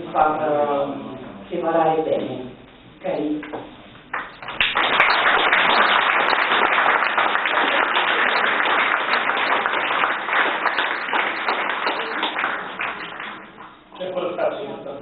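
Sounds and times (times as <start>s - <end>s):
audience applauding: 4.1s - 13.8s.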